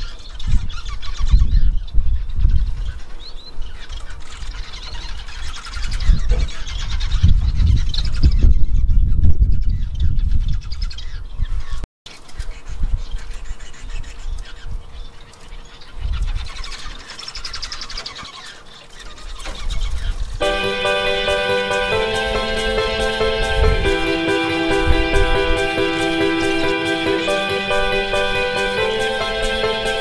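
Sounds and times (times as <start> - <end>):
finches chirping and calling: 0.0 - 23.4.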